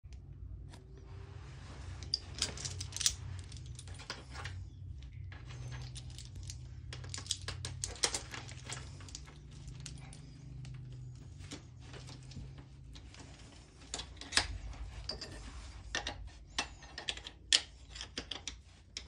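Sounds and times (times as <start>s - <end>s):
low steady hum: 0.0s - 19.0s
metal clicks and clinks: 2.0s - 4.6s.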